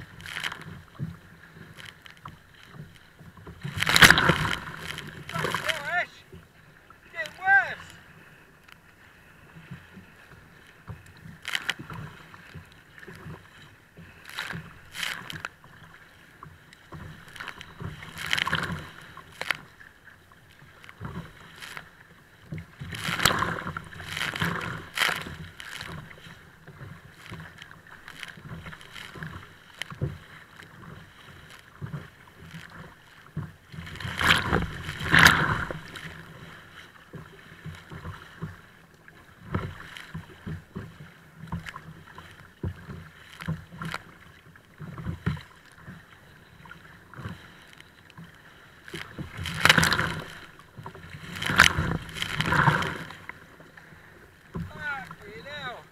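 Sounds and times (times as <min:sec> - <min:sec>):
kayak hull slapping waves: 0:00.0 - 0:55.9
water splashing and rushing: 0:00.0 - 0:55.9.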